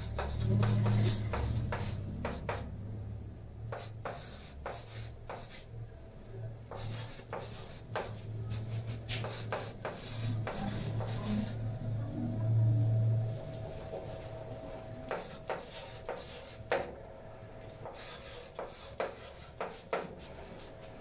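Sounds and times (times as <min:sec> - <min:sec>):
chalk scratching on blackboard: 0:00.0 - 0:02.7, 0:03.7 - 0:05.7, 0:06.7 - 0:11.6, 0:13.3 - 0:17.0, 0:17.8 - 0:20.8
low hum: 0:10.2 - 0:16.0.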